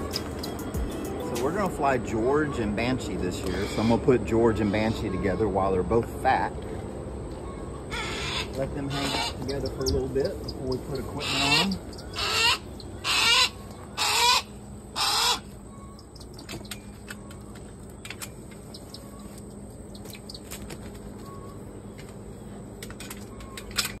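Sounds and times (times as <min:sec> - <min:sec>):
hawk screaming: 0:11.2 - 0:15.4.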